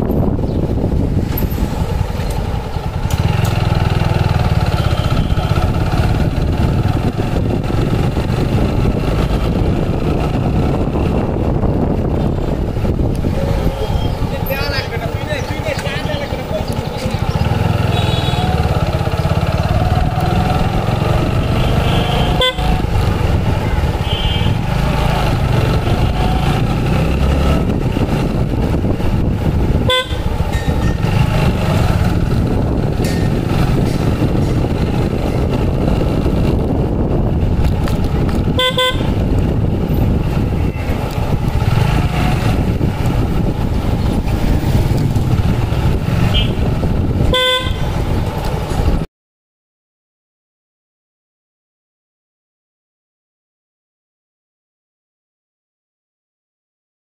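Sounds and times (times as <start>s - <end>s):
traffic engine rumble: 0.0s - 49.1s
vehicle horn toots: 4.7s - 5.6s, 17.8s - 18.7s, 21.5s - 22.8s, 23.5s - 24.7s, 29.8s - 30.4s, 38.5s - 39.2s, 46.2s - 46.7s, 47.3s - 48.0s.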